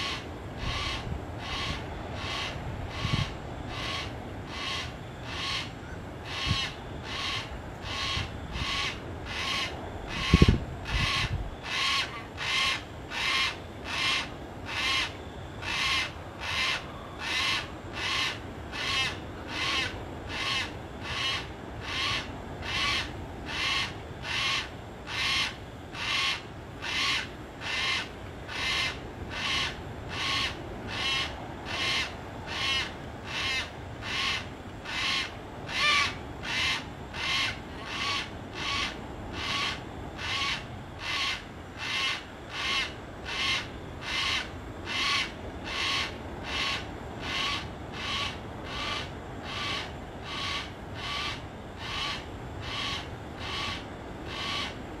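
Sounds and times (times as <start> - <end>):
cockatoo harsh calls: 0.0 - 54.8.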